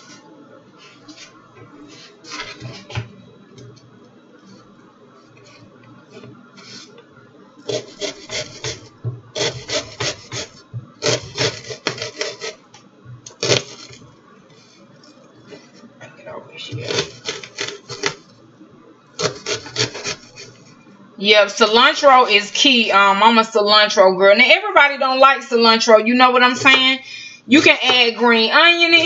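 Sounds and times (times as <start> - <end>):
knife chopping onion: 7.7 - 12.6, 13.3 - 14.0, 16.8 - 18.2, 19.2 - 20.6.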